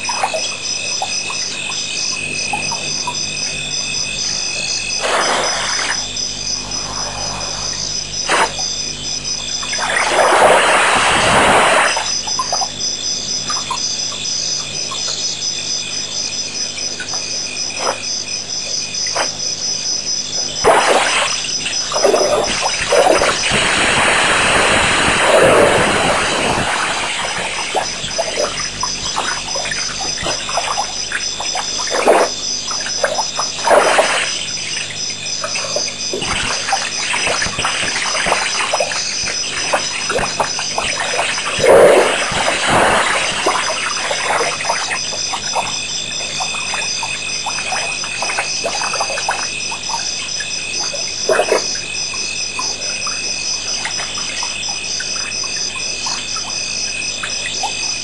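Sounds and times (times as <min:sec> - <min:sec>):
crickets chirping: 0:00.0 - 0:58.0
water splashing from elephant trunk: 0:09.7 - 0:12.7, 0:20.6 - 0:50.2.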